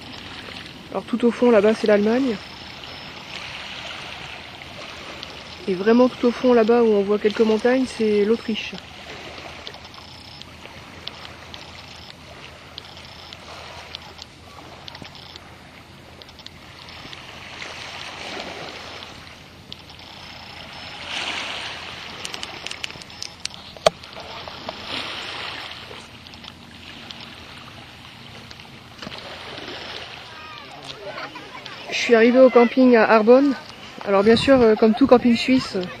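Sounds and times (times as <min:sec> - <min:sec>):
small waves lapping: 0:00.0 - 0:36.0
sharp clicks: 0:22.1 - 0:24.2.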